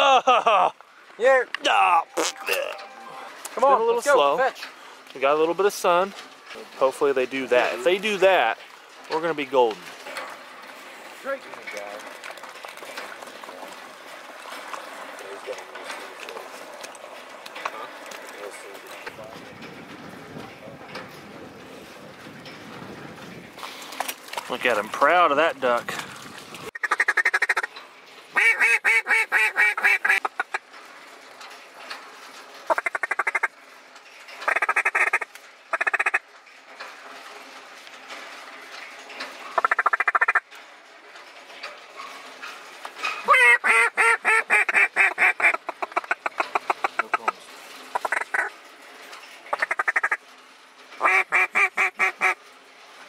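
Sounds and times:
duck call quacking: 26.8s - 27.7s, 28.4s - 30.6s, 32.7s - 33.5s, 34.5s - 36.2s, 43.3s - 47.2s, 48.0s - 48.5s, 49.5s - 50.2s, 51.0s - 52.4s.

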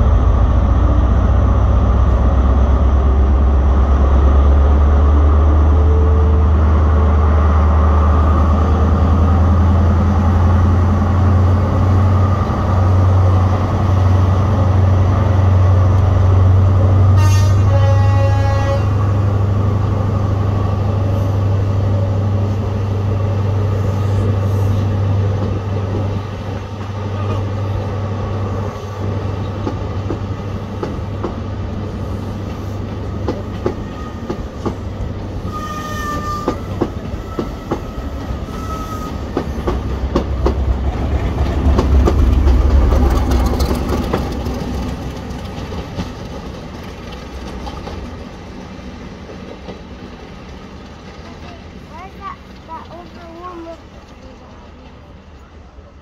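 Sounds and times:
diesel locomotive engine: 0.0s - 56.0s
train horn blast: 17.1s - 19.1s, 35.4s - 39.3s
train wheels clattering over rail joints: 32.4s - 35.0s, 36.1s - 55.0s.

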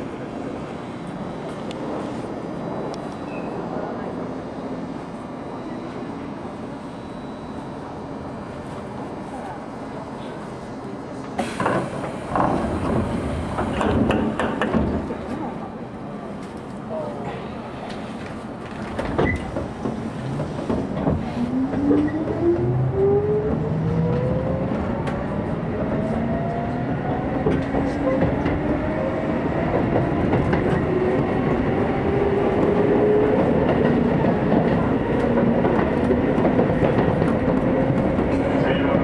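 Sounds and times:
rail joints clicking: 11.4s - 15.4s.

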